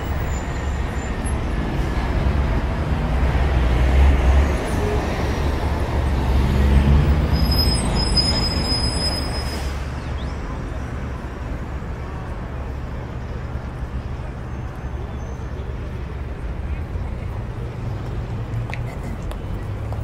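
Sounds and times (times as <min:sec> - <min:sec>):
rumble of passing vehicles: 0:00.0 - 0:20.0
thin high squeal: 0:07.4 - 0:09.8.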